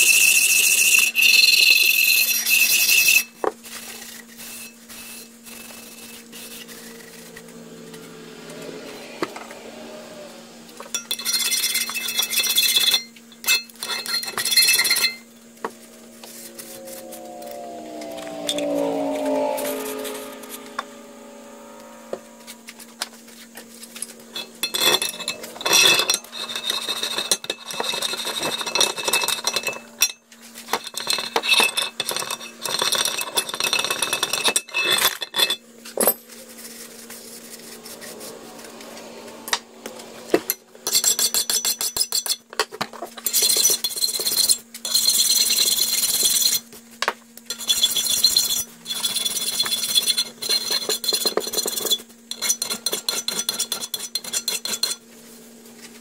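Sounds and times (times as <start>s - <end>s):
steady low hum: 3.7s - 31.0s, 35.6s - 41.7s.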